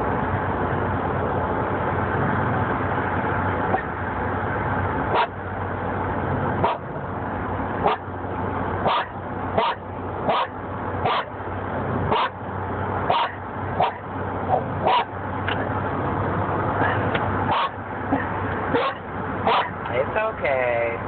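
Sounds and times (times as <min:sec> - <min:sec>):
car road and engine noise: 0:00.0 - 0:21.0
dog barking: 0:06.6 - 0:06.8, 0:08.9 - 0:11.3, 0:12.1 - 0:12.3, 0:13.1 - 0:14.0, 0:14.8 - 0:15.1, 0:17.5 - 0:17.8, 0:18.7 - 0:19.8.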